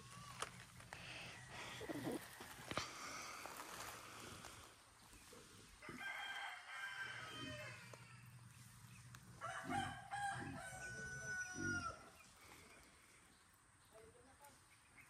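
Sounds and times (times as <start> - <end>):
rooster crowing: 5.8 - 8.4, 9.4 - 12.1.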